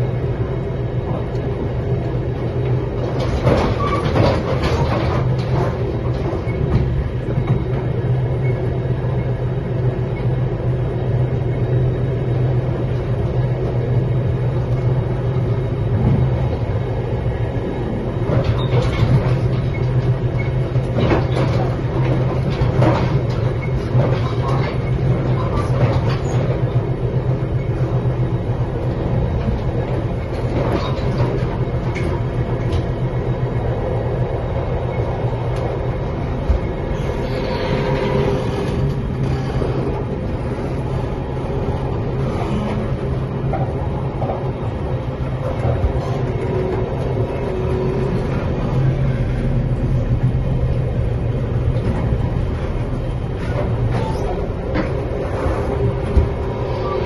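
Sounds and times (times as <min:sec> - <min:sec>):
train rumble and hum: 0:00.0 - 0:57.0
train wheel clicks and rattles: 0:01.0 - 0:08.6, 0:18.1 - 0:40.9, 0:41.6 - 0:57.0.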